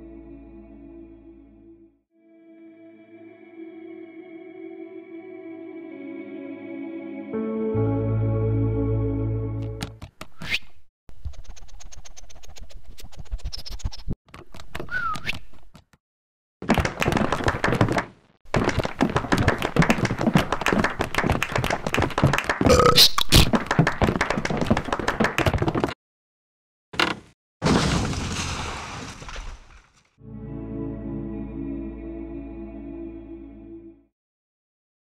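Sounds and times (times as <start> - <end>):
rapid clatter of taps: 16.6 - 22.5.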